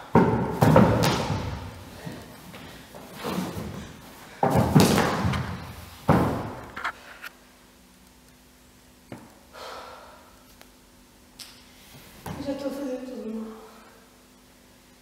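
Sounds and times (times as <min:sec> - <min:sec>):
body thudding on wooden floor: 0:03.0 - 0:06.6.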